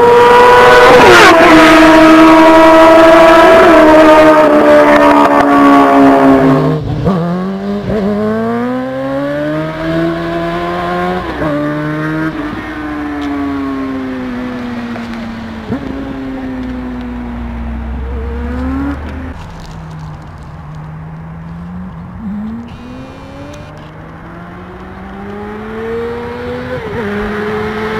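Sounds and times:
motorcycle engine revving high: 0.0 - 14.6, 21.6 - 27.9
motorcycle accelerating through gears: 0.0 - 20.2, 21.2 - 27.9.

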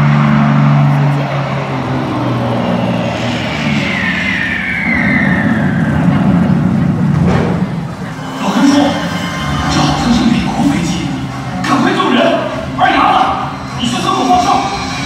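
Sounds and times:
aircraft engine drone: 0.0 - 15.0
high whistle sliding downward: 2.4 - 6.4.

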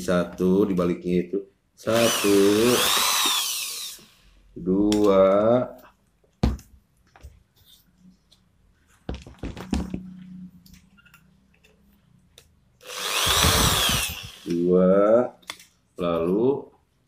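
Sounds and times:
electric drill whining: 1.8 - 4.4, 12.8 - 14.6.

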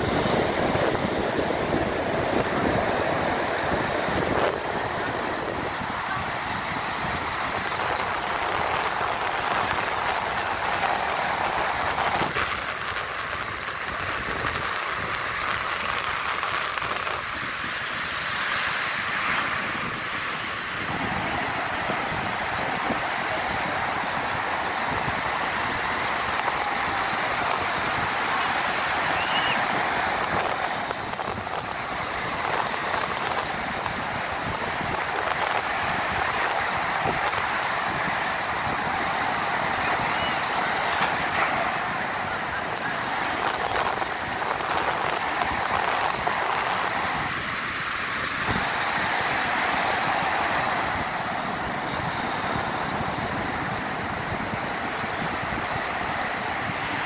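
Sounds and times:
surf breaking and washing on sand: 0.0 - 57.0
wind on microphone: 0.0 - 57.0.

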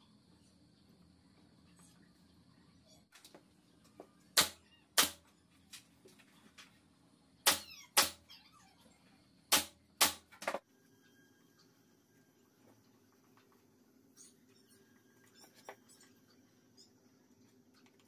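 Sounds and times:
pneumatic nail gun firing: 7.4 - 8.2, 9.5 - 10.3.

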